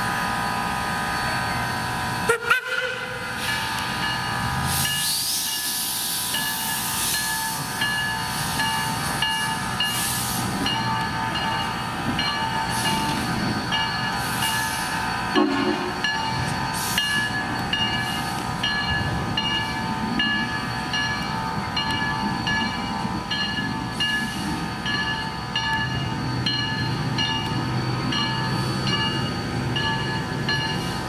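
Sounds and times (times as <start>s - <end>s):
locomotive bell ringing: 0.1s - 31.0s
steam hissing: 3.2s - 20.8s
steam puffs: 4.6s - 7.7s, 8.3s - 10.6s, 16.5s - 17.3s.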